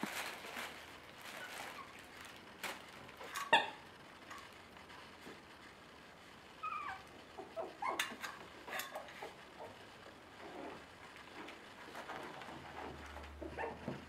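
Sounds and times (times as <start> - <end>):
puppies yipping: 6.6 - 8.2
puppy squeaking: 6.6 - 8.2.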